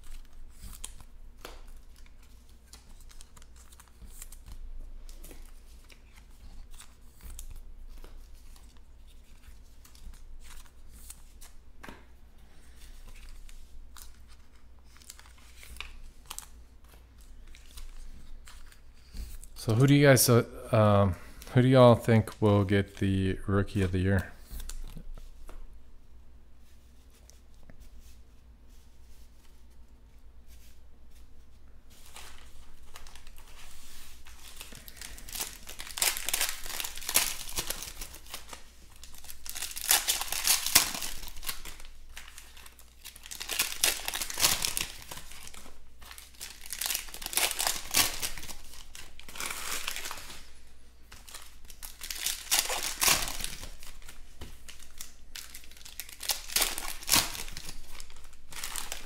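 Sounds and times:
foil wrappers tearing and crumpling: 0:32.0 - 0:59.0.

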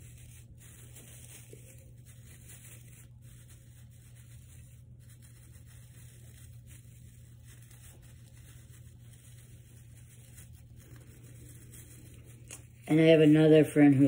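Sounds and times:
plastic branches rustling: 0:00.0 - 0:14.0
steady low hum: 0:00.0 - 0:14.0.

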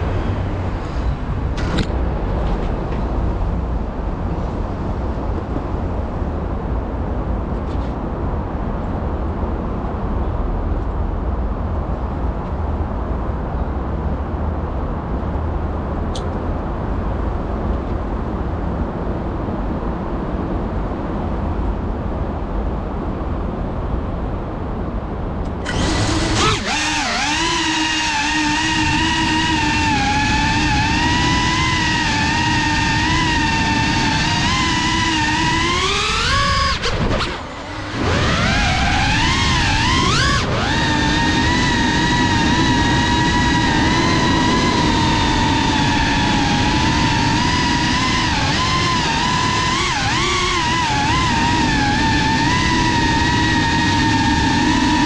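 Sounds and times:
drone motors whining: 0:00.0 - 0:03.2, 0:25.5 - 0:55.0
low rushing noise: 0:00.0 - 0:07.6.

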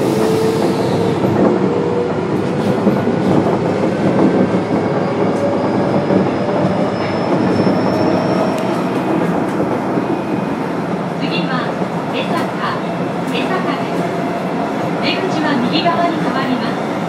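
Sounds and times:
train wheel and track noise: 0:00.0 - 0:17.0.

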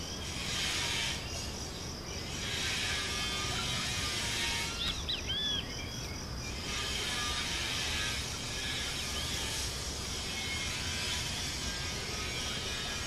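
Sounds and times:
buzzing insect chorus: 0:00.0 - 0:13.0
bird whistling: 0:04.7 - 0:06.0.

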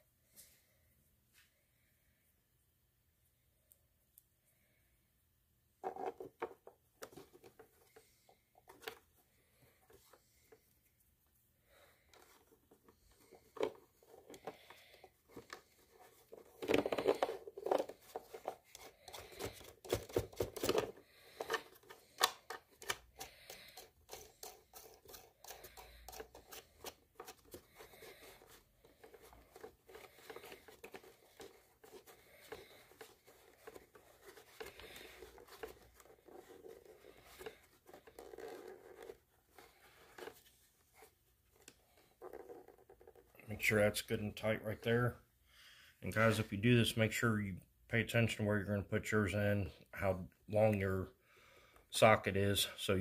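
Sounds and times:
plastic clicks and scrapes: 0:12.1 - 0:43.3.

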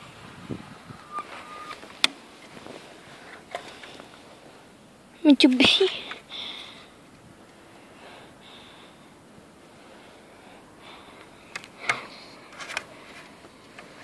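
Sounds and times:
quiet handling noise: 0:00.9 - 0:04.7, 0:11.1 - 0:14.0.

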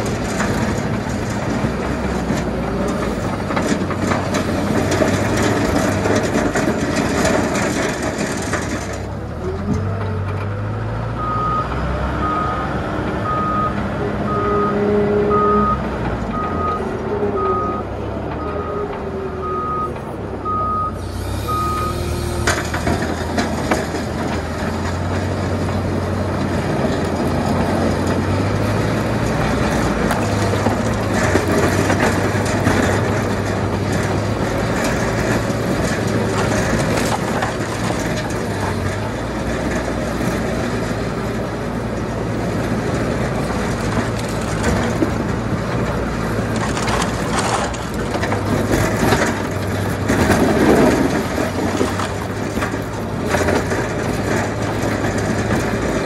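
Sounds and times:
snowplow blade scraping road: 0:00.0 - 0:56.0
tractor engine running: 0:00.0 - 0:56.0
reversing alarm beeping: 0:11.2 - 0:22.4.

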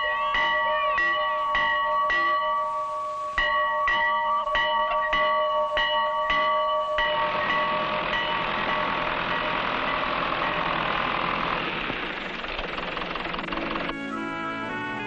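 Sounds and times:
farm bell ringing: 0:00.0 - 0:15.0
steady engine-like noise: 0:07.1 - 0:15.0.

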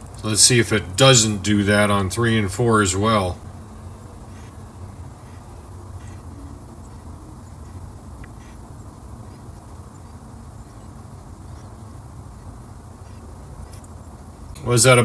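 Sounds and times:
faint hiss: 0:00.0 - 0:15.0
low background hum: 0:00.0 - 0:15.0
faint ticks: 0:06.0 - 0:11.7.

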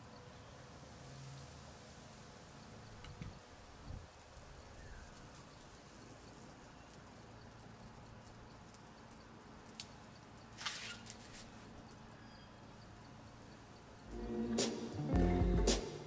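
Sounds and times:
outdoor background hiss: 0:00.0 - 0:16.0
faint clicks: 0:05.0 - 0:12.0
short rustle: 0:09.8 - 0:11.9
music: 0:14.1 - 0:16.0.

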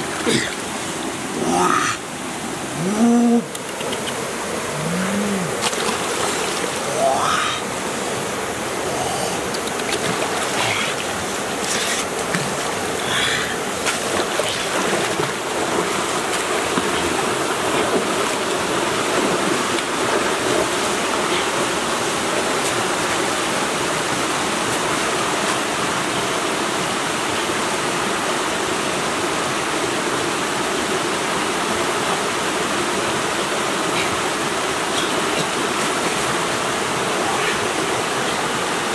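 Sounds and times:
waterfall and stream rushing: 0:00.0 - 0:38.9
person wading through water: 0:04.2 - 0:23.2.

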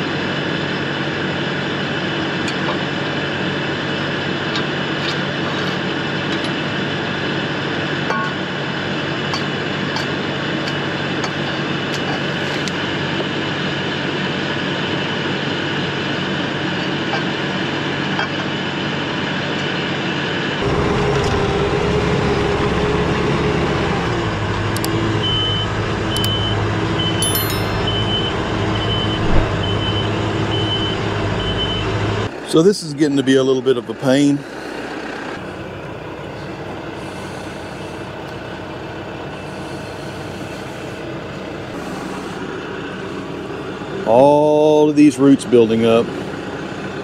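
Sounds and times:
tractor diesel engine running: 0:00.0 - 0:47.0
short high beeps: 0:27.2 - 0:28.3.

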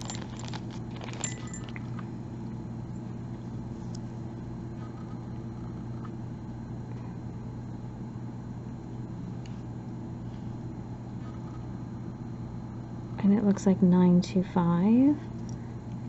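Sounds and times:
plastic bag crinkling: 0:00.0 - 0:02.0
low mechanical hum: 0:00.0 - 0:16.0.

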